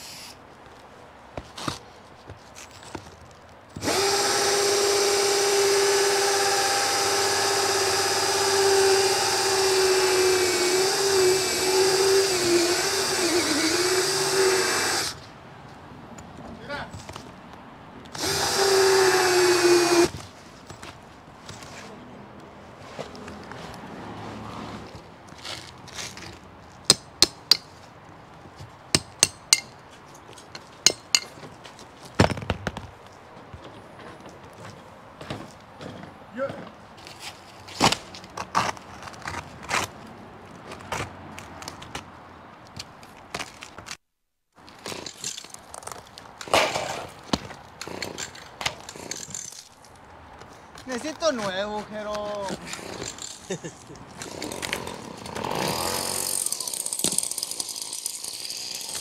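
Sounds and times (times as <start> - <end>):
cordless drill boring: 3.8 - 15.2, 18.2 - 20.1, 55.7 - 59.0
hammer tapping metal tool: 30.8 - 31.3.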